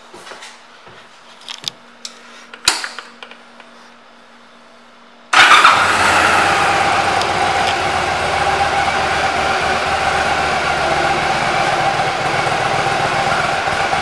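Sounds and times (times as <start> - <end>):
motorcycle engine starting and idling: 5.3 - 14.0.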